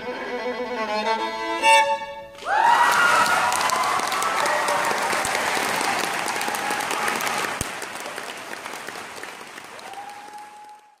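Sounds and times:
audience applauding: 2.4s - 11.0s.

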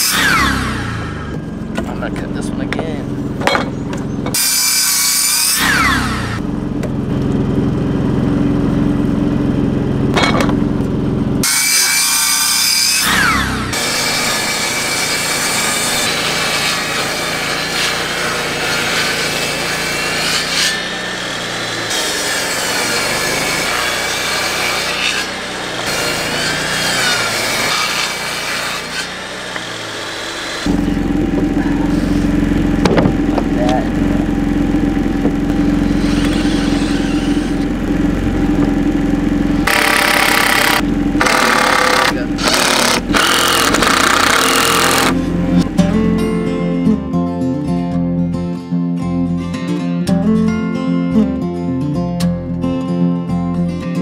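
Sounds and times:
table saw ripping wood: 0.0s - 1.9s, 3.5s - 6.4s, 11.4s - 31.0s, 31.8s - 33.5s, 35.5s - 38.7s, 39.6s - 45.8s
miter saw cutting wood: 0.0s - 47.1s.

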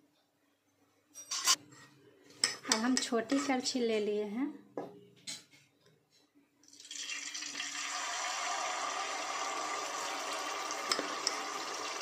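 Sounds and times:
batter deep-frying sizzle: 6.7s - 12.0s.

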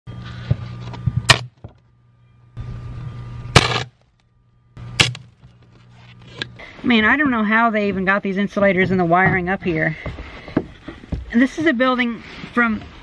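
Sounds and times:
electrical buzzing: 0.1s - 9.6s.

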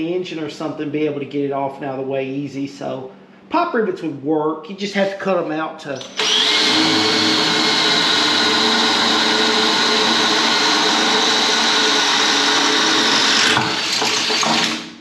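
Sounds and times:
cordless drill whining: 6.0s - 15.0s.

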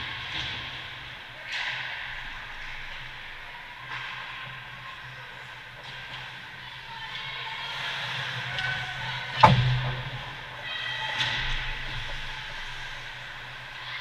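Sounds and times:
steady low hum: 9.4s - 13.8s.

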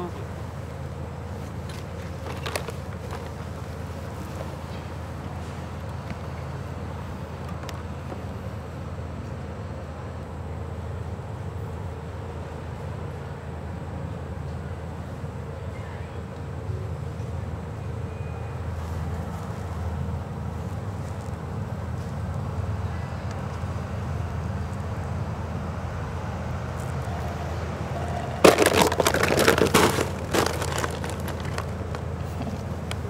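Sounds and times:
low outdoor hum: 0.0s - 33.0s
loud dense crackling: 28.4s - 32.1s.

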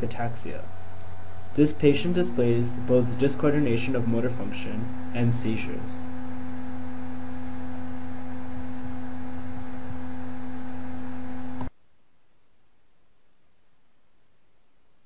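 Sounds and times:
electrical hum: 0.0s - 11.7s.

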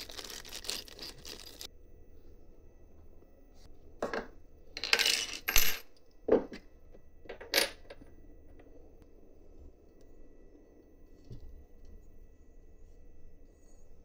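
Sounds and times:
small metal parts clinking: 0.0s - 1.7s, 4.8s - 6.0s.

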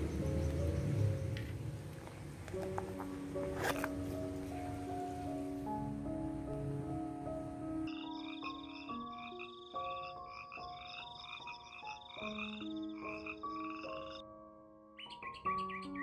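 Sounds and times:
frogs croaking: 0.0s - 1.6s, 7.8s - 14.2s, 15.0s - 16.0s
soft background music: 0.0s - 16.0s.

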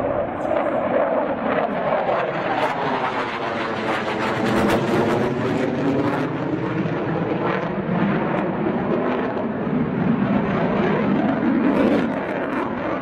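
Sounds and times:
fighter jet roaring overhead: 0.0s - 13.0s.

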